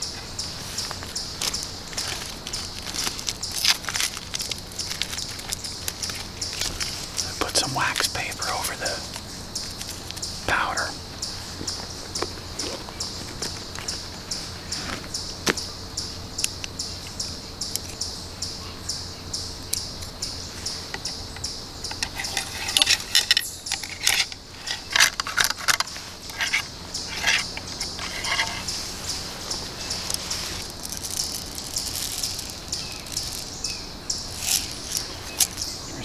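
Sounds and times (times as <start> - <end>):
insects chirping: 0.0 - 36.0
ramrod scraping knocks in barrel: 21.9 - 28.8.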